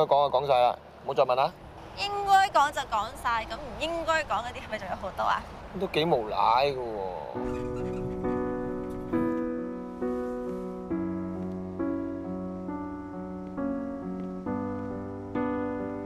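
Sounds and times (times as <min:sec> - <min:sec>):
slow piano chords: 0:07.2 - 0:16.0.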